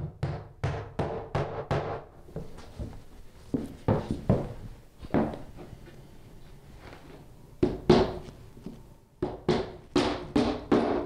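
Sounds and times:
hammer striking nails into wood: 0.0 - 2.0, 9.2 - 11.0.

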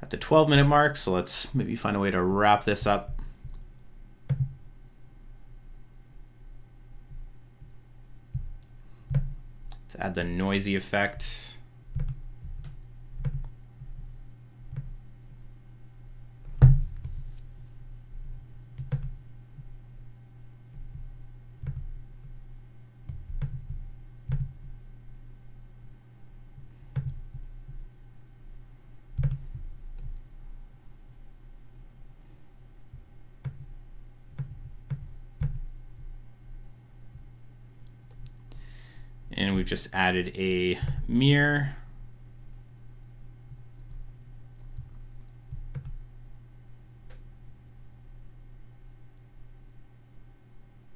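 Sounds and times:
steady low hum: 0.0 - 50.9
computer mouse clicking: 26.9 - 27.4, 29.2 - 30.5, 34.3 - 35.7, 37.8 - 38.5, 44.7 - 46.0.

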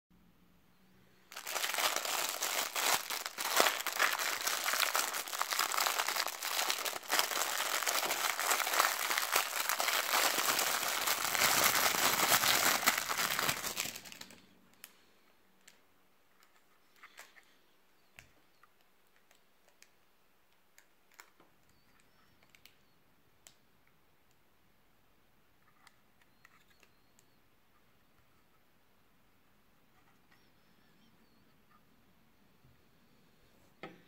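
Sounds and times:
plastic bag crinkling: 1.3 - 14.4.

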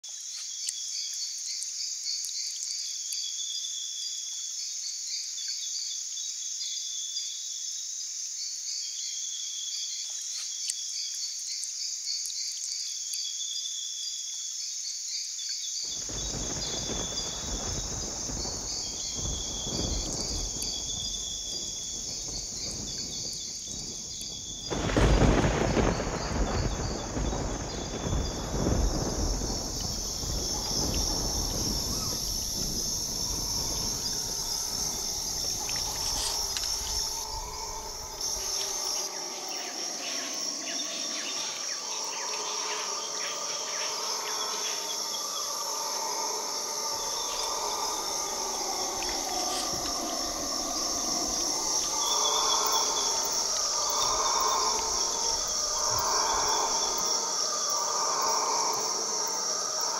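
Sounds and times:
insect chorus: 0.0 - 59.9
thunder rumbling: 15.9 - 59.9
howler monkeys calling: 16.0 - 59.9.

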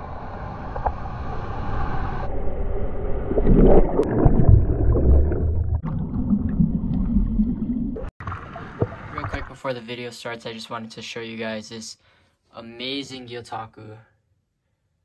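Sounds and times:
ocean waves churning underwater: 0.0 - 9.6.

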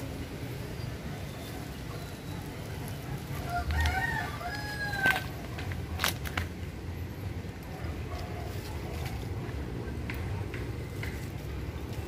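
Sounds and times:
rooster crowing: 3.4 - 5.5.

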